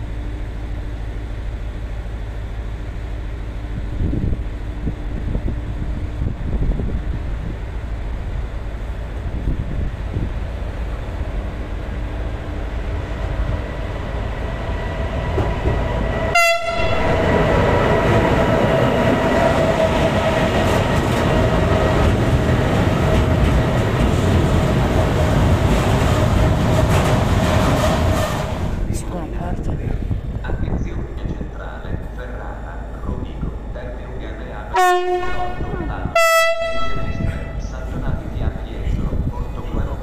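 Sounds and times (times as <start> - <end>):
train rail noise: 0.0 - 40.0
train horn: 16.3 - 17.2, 34.7 - 37.7.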